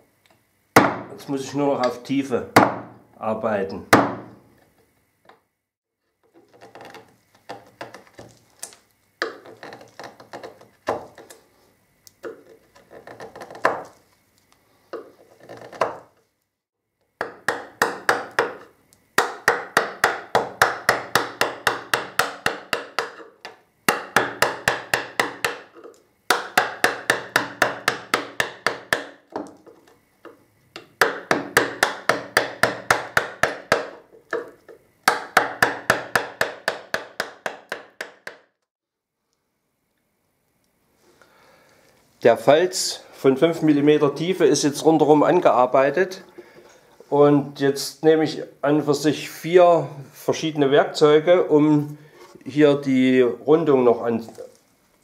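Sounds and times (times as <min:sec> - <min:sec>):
chisel paring and scraping wood: 0:06.2 - 0:11.4, 0:12.2 - 0:14.0, 0:14.9 - 0:16.2, 0:17.2 - 0:38.4
mallet tapping chisel: 0:17.2 - 0:38.5.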